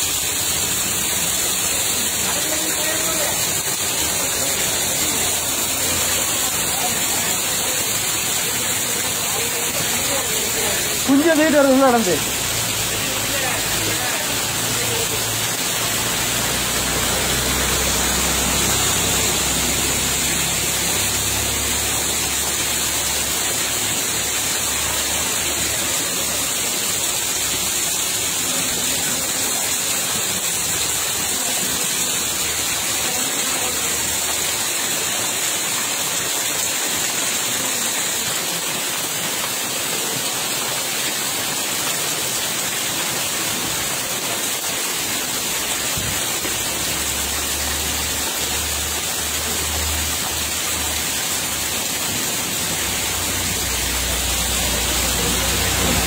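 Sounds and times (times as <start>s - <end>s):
water flowing and splashing: 0.0s - 56.0s.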